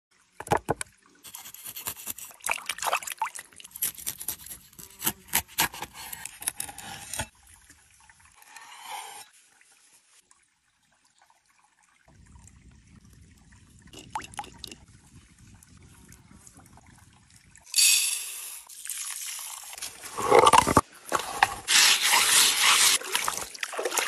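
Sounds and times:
knife scraping and clicking: 1.3 - 2.4, 3.7 - 7.3.

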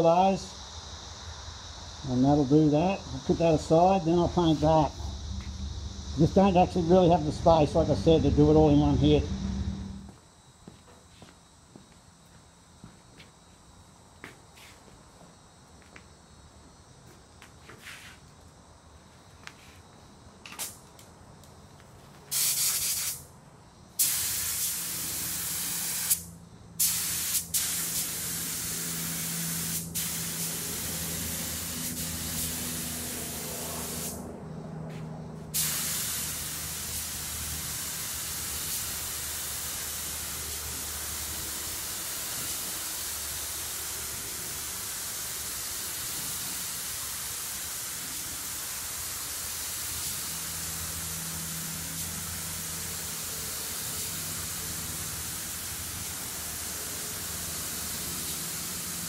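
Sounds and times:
paint spray gun hissing: 3.1 - 9.0, 22.3 - 23.2, 24.0 - 34.2, 35.6 - 59.0.

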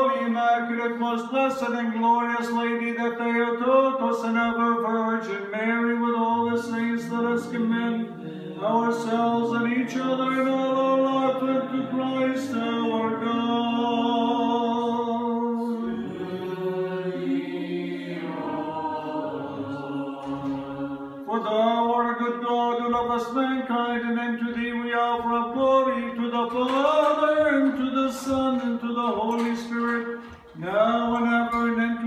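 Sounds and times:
a cappella choir chanting: 5.8 - 22.2.

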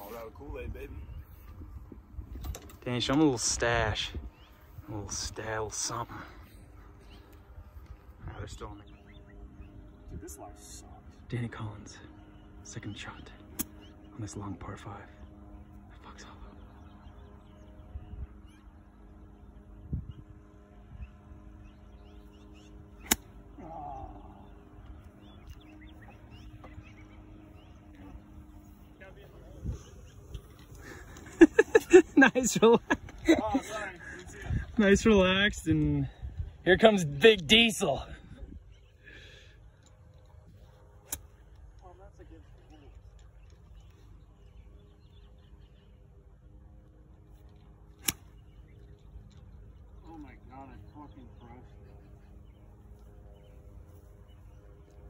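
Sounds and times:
golf iron striking ball: 23.0 - 23.5, 47.9 - 48.6.

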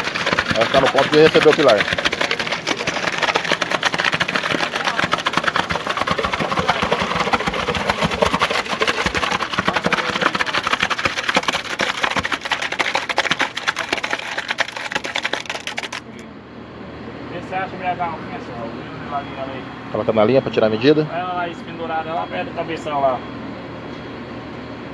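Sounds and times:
gravelly concrete pouring rattle: 0.0 - 16.1
mixer truck engine running: 0.0 - 16.2.

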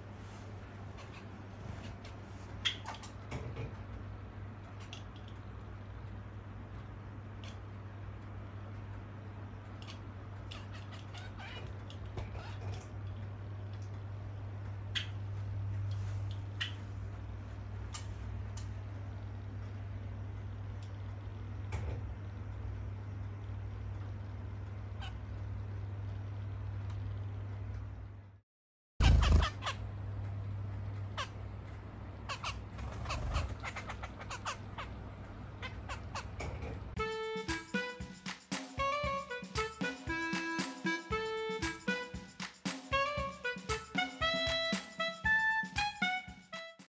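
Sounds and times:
steady low hum: 0.0 - 28.4, 29.0 - 45.2
finch calls: 9.8 - 12.8, 29.0 - 29.8, 32.2 - 35.0, 35.6 - 36.5
finches giving nasal calls: 29.0 - 29.8, 32.2 - 35.0.

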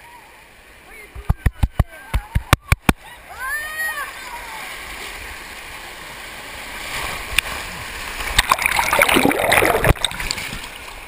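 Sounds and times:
water rushing and splashing: 0.0 - 11.0
underwater churning and bubbling: 7.2 - 10.9.

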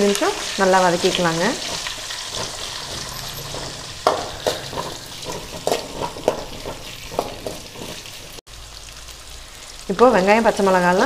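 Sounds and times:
oil frying hiss: 0.0 - 11.0
spoon scraping metal pan: 0.4 - 8.4.

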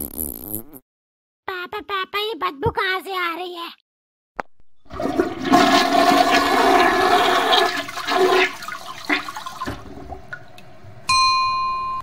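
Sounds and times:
toilet flushing: 4.9 - 10.8.

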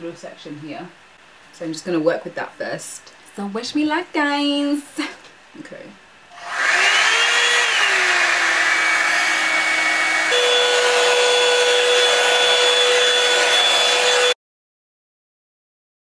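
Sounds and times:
hair dryer brush air and motor whine: 6.3 - 14.4.

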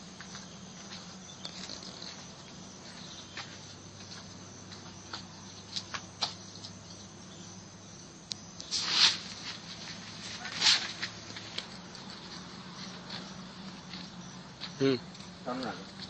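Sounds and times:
faint hiss: 8.3 - 11.8.

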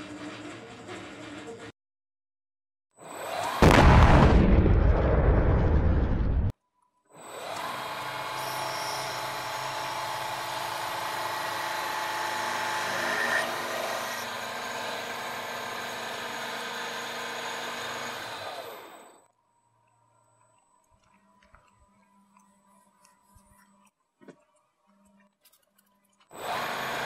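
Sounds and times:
explosion sound effect: 3.6 - 6.5
milling cutter cutting metal: 7.2 - 19.3, 26.3 - 27.0.

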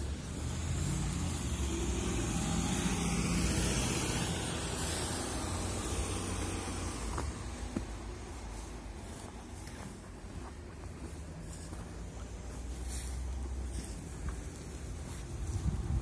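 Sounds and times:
vehicle passing on snow: 0.0 - 16.0.

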